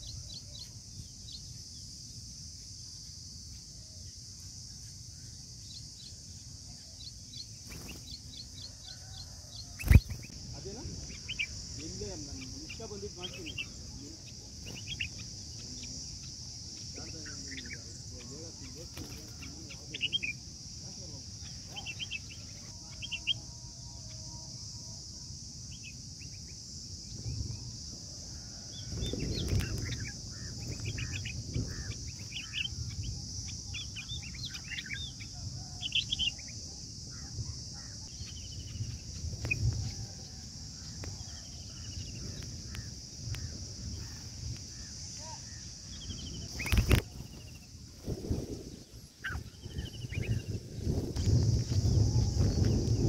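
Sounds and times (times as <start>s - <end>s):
high insect drone: 0.0s - 53.0s
bird chirps: 5.6s - 20.4s, 21.4s - 24.4s, 28.9s - 39.9s, 49.0s - 53.0s.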